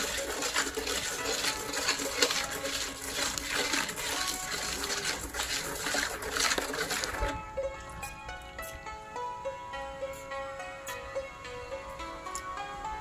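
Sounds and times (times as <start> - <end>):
metal ladle scraping a wok: 0.0 - 7.4
background music: 0.0 - 13.0.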